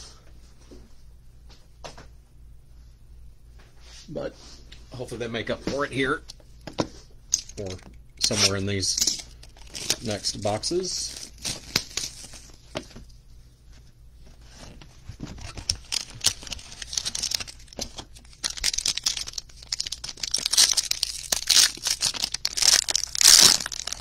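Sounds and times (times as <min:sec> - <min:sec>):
foil pack crinkling and tearing: 0:09.2 - 0:12.8, 0:14.6 - 0:24.0.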